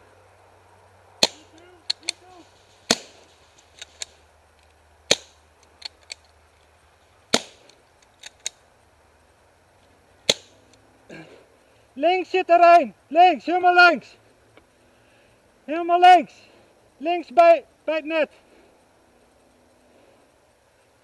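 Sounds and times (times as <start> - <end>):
paintball marker shots: 1.2 - 4.2, 5.1 - 6.1, 7.3 - 8.6, 10.3 - 10.6
faint cracks: 1.2 - 11.2.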